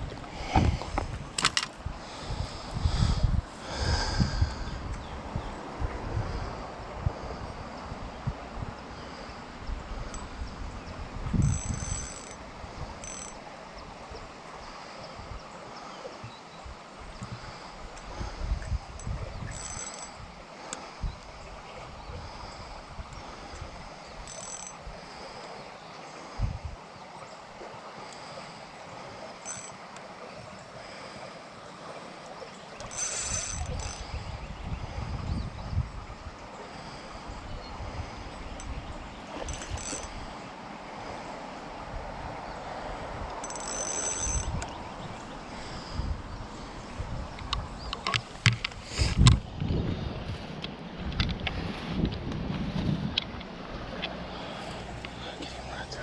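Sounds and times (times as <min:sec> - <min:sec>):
wind and handling rumble: 0:00.0 - 0:56.0
fishing reel ratcheting: 0:11.4 - 0:12.4, 0:13.0 - 0:13.4, 0:19.0 - 0:20.8, 0:23.5 - 0:24.8, 0:29.4 - 0:29.8, 0:32.8 - 0:34.2, 0:39.4 - 0:40.3, 0:43.4 - 0:44.8
fishing reel high-pitched sounds: 0:32.8 - 0:34.1, 0:39.4 - 0:40.2, 0:43.4 - 0:44.7.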